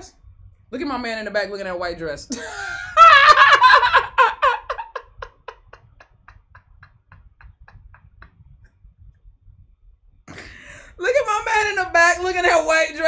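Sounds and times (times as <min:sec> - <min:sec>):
woman laughing hard: 0:02.3 - 0:08.1.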